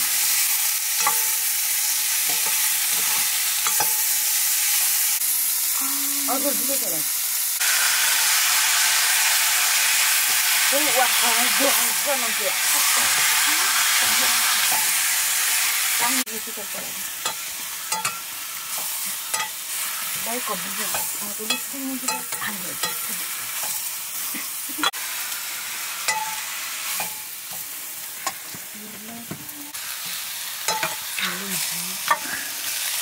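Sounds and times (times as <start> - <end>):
food sizzling in a pan: 0.0 - 33.0.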